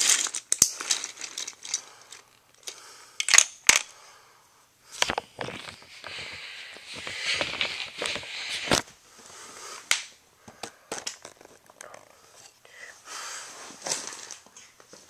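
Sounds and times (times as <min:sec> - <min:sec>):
plastic toys scuffing and rustling: 0:00.0 - 0:02.8, 0:04.9 - 0:09.6, 0:10.4 - 0:12.5, 0:13.4 - 0:15.0.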